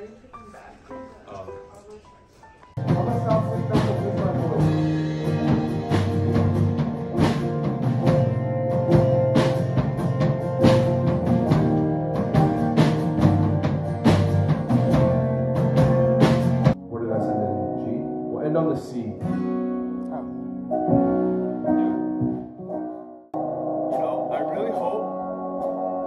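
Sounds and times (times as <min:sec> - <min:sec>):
keyboard chords: 0:02.6 - 0:26.0
acoustic guitar: 0:02.8 - 0:16.8, 0:18.2 - 0:26.0
steady drum beat: 0:02.8 - 0:16.8.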